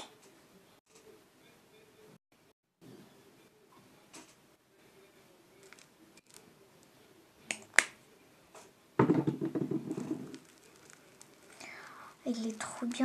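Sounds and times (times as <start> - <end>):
slime crackling and squelching: 5.6 - 6.5, 9.9 - 13.0.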